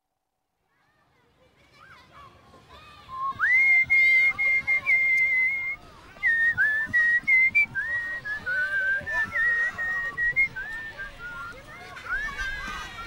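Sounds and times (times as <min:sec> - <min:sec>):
person whistling a slow tune: 0:03.1 - 0:13.0.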